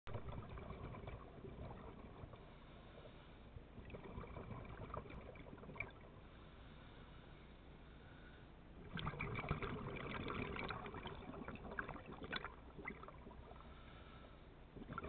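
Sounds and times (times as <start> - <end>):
crackling clicks underwater: 0.1 - 2.5, 3.8 - 6.1, 8.9 - 13.5
faint underwater hiss: 0.5 - 15.0.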